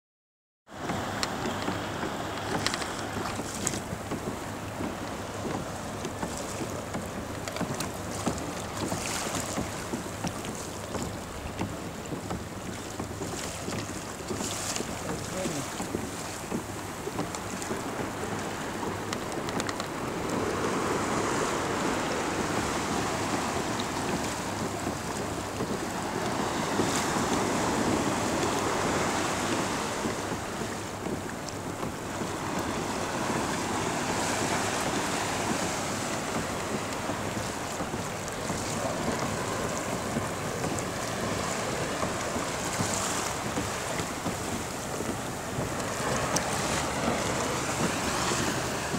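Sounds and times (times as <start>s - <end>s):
water washing against kayak: 0.7s - 48.9s
wind buffeting microphone: 0.9s - 48.9s.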